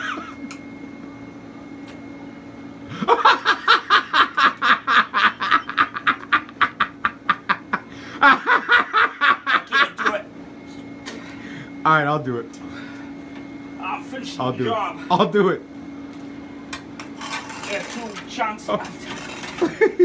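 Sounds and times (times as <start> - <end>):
person laughing hard: 0.0 - 0.4, 2.9 - 10.2, 19.6 - 20.0.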